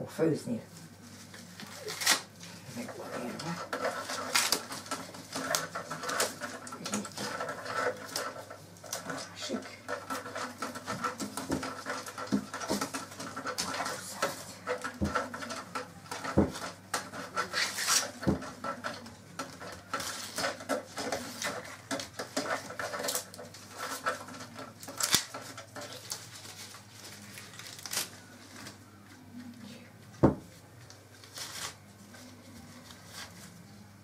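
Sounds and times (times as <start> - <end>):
corn husks rustling and tearing: 0.8 - 29.6, 31.1 - 33.9
crackles and dull knocks: 3.3 - 17.5.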